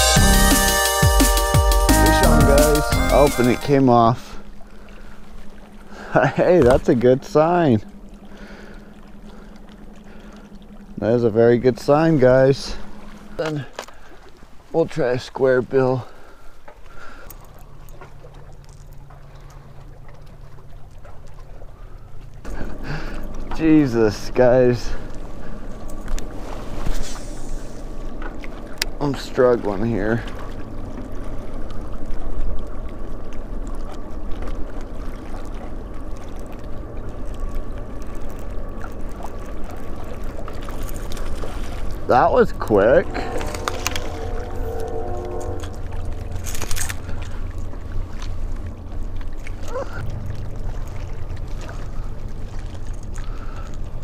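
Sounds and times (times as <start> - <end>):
waves lapping on rocks: 3.3 - 54.0
low wind rumble on microphone: 30.4 - 54.0
faint whine: 35.9 - 54.0
wind on microphone: 41.4 - 48.6.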